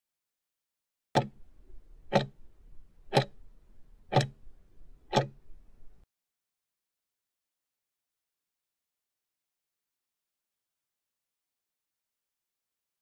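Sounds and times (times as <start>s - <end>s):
sharp clock ticks: 1.2s - 1.4s, 2.1s - 2.4s, 3.1s - 3.4s, 4.1s - 4.4s, 5.1s - 5.4s.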